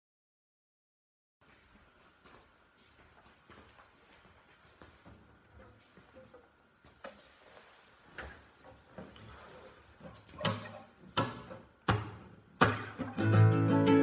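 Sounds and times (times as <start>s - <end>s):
guitar chords strummed: 12.6s - 14.0s.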